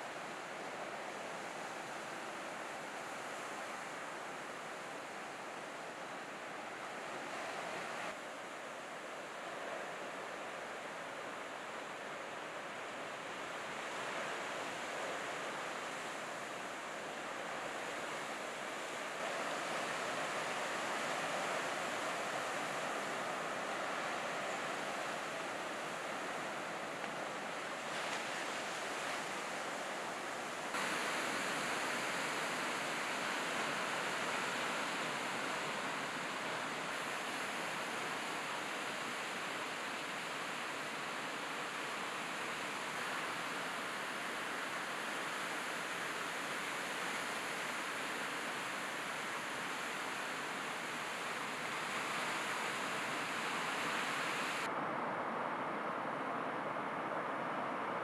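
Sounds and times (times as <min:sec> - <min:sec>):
ocean surf breaking: 0:30.4 - 0:38.5.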